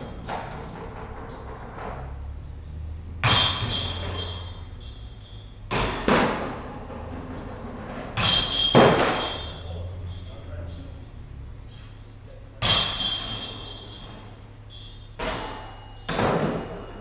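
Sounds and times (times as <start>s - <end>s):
sharp knocks: 3.2s - 4.5s
chains jangling: 3.3s - 5.6s, 8.2s - 10.8s, 12.6s - 15.1s.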